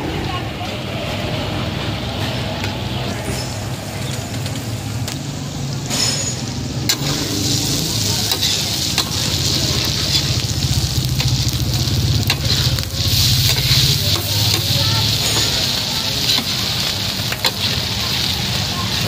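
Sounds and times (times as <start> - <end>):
metal spatula scraping griddle: 5.9 - 11.6, 12.2 - 19.0
meat sizzling on a griddle: 6.4 - 19.0.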